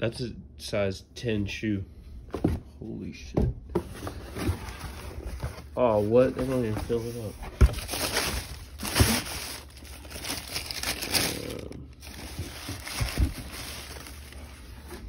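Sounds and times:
tissue paper rustling: 4.1 - 15.0.

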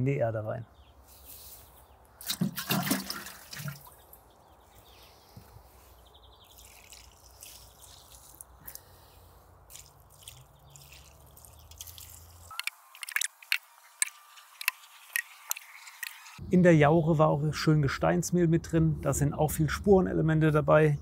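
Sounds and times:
liquid dripping onto soil: 6.3 - 16.2.

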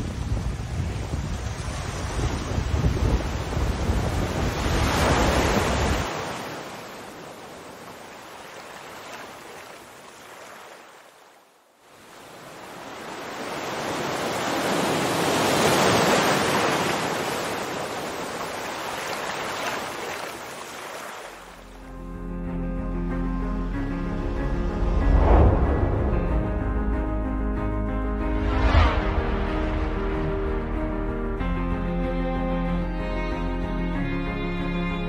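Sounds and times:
wind buffeting microphone: 0.0 - 6.1
sea water rushing: 0.0 - 21.9, 24.2 - 26.9, 28.2 - 31.4.

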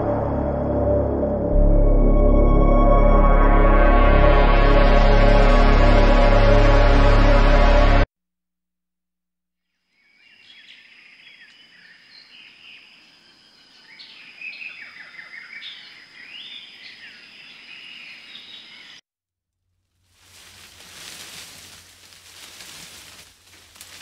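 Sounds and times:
high-pitched whine: 0.0 - 7.9
birds chirping: 10.0 - 19.0.

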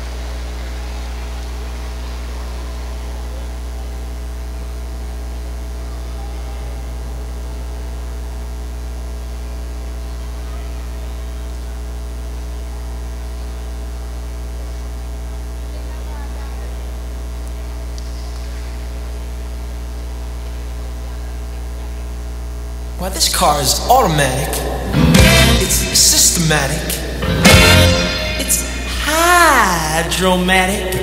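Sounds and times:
faint murmur of voices: 0.0 - 22.6
electrical mains hum: 0.0 - 31.0.

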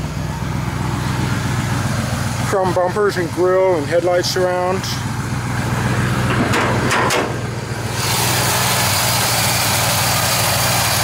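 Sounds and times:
truck engine idling: 0.0 - 11.0
engine knocks: 0.7 - 8.0.

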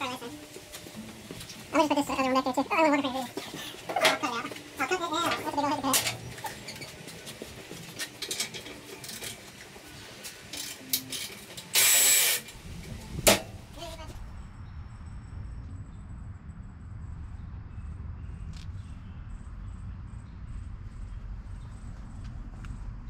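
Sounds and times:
insects chirping: 14.1 - 23.0.

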